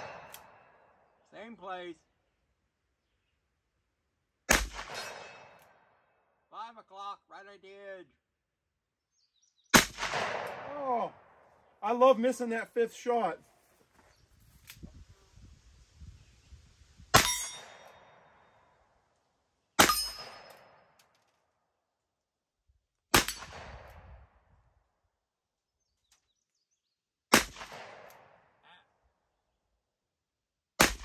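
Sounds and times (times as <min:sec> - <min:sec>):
revolver gunshots echoing: 0:04.5 - 0:05.9, 0:09.7 - 0:11.4, 0:17.1 - 0:18.5, 0:19.8 - 0:20.9, 0:23.1 - 0:23.9, 0:27.3 - 0:28.5.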